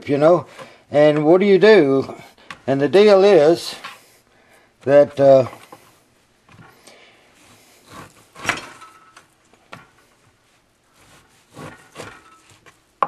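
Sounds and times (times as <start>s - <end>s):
knife slicing raw meat: 11.0s - 12.8s.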